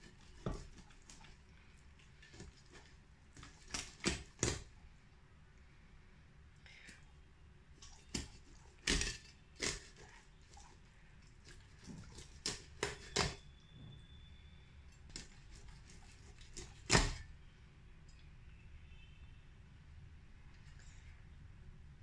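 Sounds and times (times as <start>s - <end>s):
knife cutting fish: 0.0s - 1.3s, 2.2s - 4.7s, 7.8s - 10.8s, 11.4s - 13.4s, 15.1s - 17.2s.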